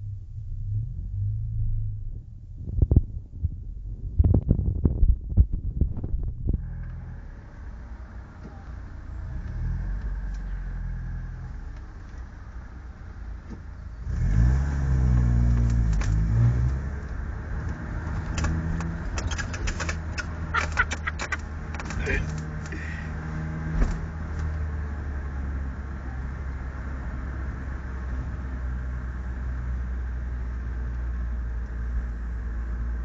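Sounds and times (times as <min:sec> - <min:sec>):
sharp clicks or rattles: 0:18.3 - 0:22.8.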